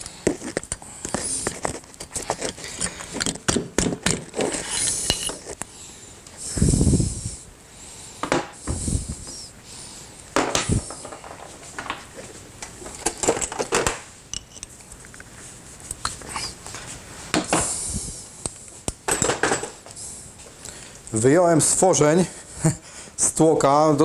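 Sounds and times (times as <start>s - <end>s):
metal tools clinking on engine parts: 4.6s - 5.4s.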